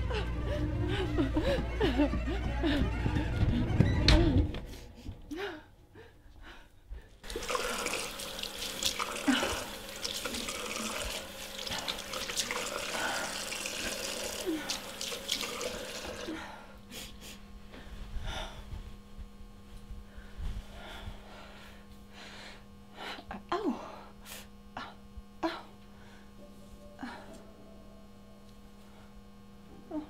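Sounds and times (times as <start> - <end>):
water splashing face washing: 7.2 - 16.4.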